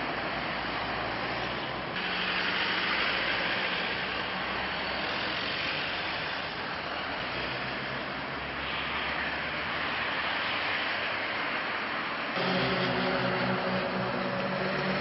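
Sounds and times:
car engine: 12.4 - 15.0.

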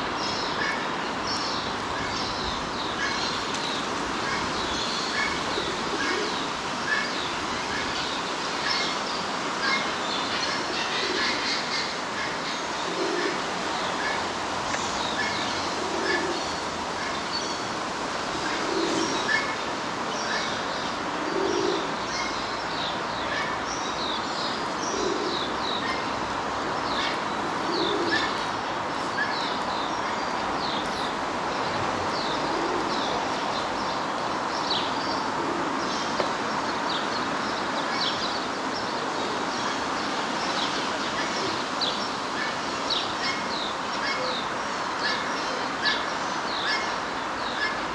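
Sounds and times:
outdoor background hiss: 0.0 - 47.9
pigeon cooing: 5.5 - 6.4, 12.9 - 13.4, 15.8 - 16.4, 18.4 - 19.4, 21.2 - 21.9, 24.9 - 26.0, 27.6 - 28.4, 32.4 - 33.0.

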